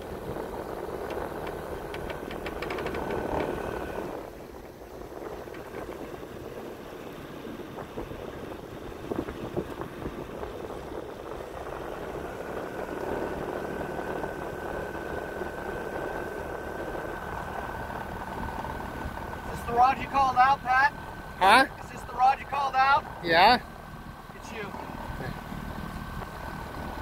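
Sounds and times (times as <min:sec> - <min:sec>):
boat motor idling: 0:00.0 - 0:27.0
thin steady whine: 0:09.0 - 0:27.0.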